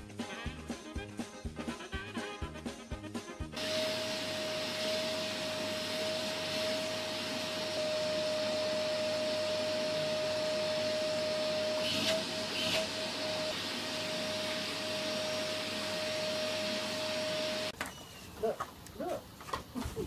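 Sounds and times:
vacuum cleaner running: 3.6 - 17.8.

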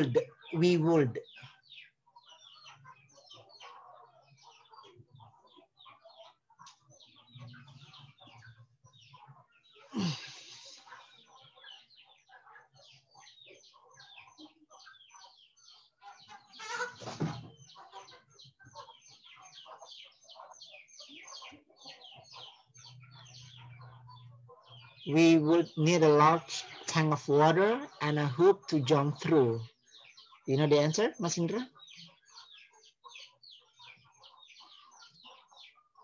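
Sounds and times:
birds chirping: 0.0 - 36.0
loud bird calls: 0.0 - 36.0.

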